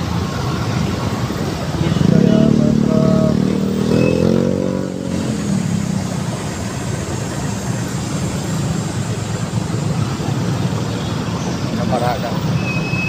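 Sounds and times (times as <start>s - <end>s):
road noise: 0.0s - 13.0s
motorcycle engine accelerating: 1.8s - 7.1s.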